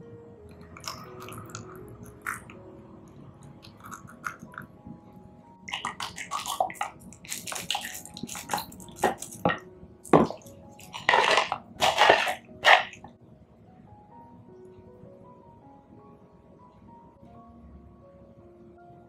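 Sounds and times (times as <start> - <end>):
thick liquid splashing and plopping: 5.7 - 13.0.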